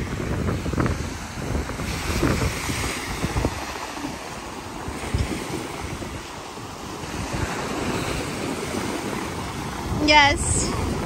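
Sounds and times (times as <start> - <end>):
small waves washing onto sand: 0.0 - 11.0
wind buffeting microphone: 0.0 - 11.0.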